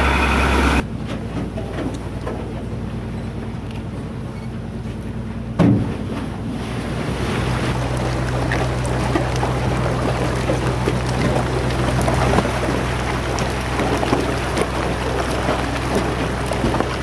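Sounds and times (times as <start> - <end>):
boat engine humming: 0.0 - 17.0
ice fizzing and crackling: 7.2 - 17.0.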